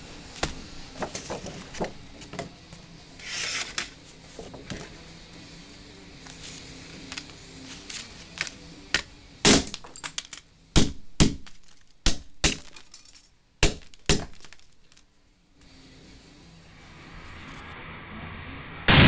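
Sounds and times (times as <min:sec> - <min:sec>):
hammer smashing plastic cassette: 0:09.5 - 0:15.0.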